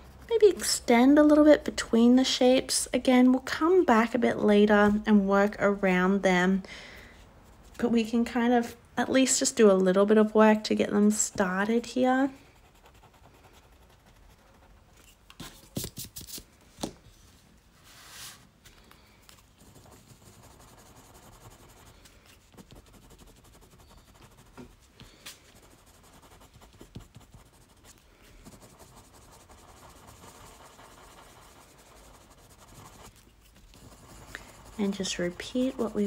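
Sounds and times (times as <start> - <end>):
pencil scratching on paper: 0.0 - 1.4, 11.6 - 15.1, 19.6 - 36.0.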